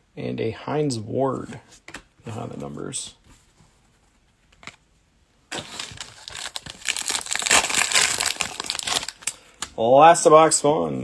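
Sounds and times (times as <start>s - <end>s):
foil wrapper tearing and crumpling: 5.5s - 9.4s.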